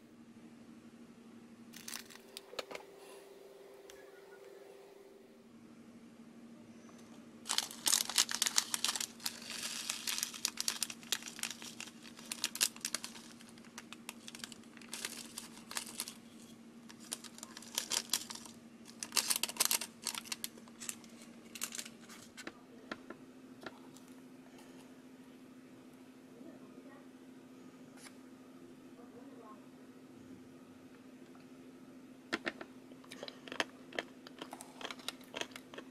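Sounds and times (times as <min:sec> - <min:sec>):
plastic crinkling: 0:01.8 - 0:02.7, 0:07.5 - 0:22.5
sprinkles rattling in plastic tray: 0:07.5 - 0:16.2, 0:16.9 - 0:22.3.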